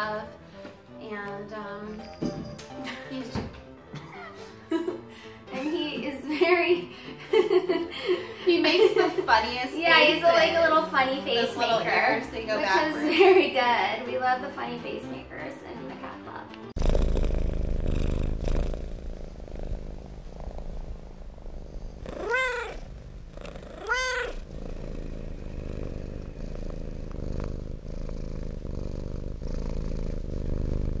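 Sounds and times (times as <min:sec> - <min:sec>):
cat purring: 0:16.6 - 0:31.0
cat meowing: 0:22.0 - 0:22.9, 0:23.6 - 0:24.5.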